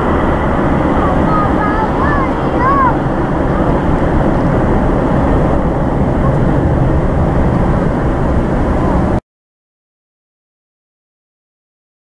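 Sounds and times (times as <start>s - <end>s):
jet engines rumbling at take-off: 0.0s - 9.2s.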